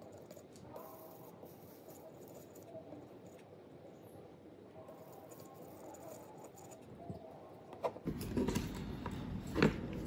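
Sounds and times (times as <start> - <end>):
faint scratching: 0.0 - 8.0.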